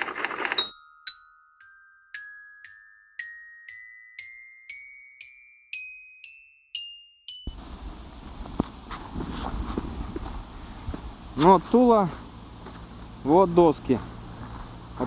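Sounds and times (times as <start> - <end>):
rising glockenspiel-like notes: 0.6 - 7.7
outdoor background noise: 7.5 - 15.0.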